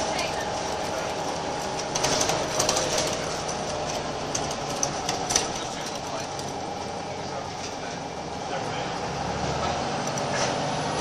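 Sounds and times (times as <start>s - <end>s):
bus diesel engine drone: 0.0s - 11.0s
bodywork rattles and clicks: 0.2s - 6.9s.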